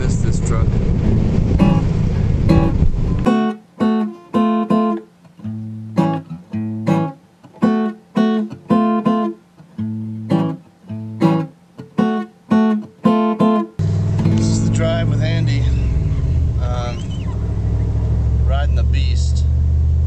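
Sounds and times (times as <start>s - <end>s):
acoustic guitar chords strummed: 0.0s - 17.7s.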